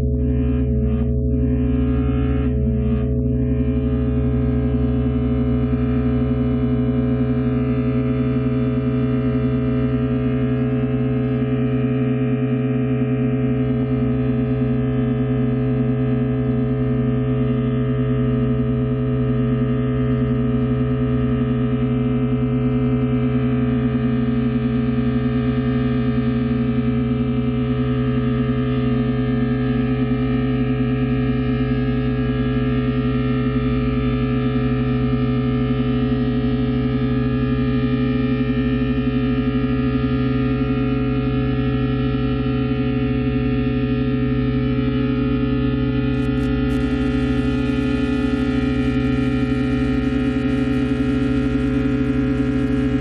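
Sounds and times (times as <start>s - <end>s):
sustained layered drone: 0.0s - 11.6s, 46.1s - 53.0s.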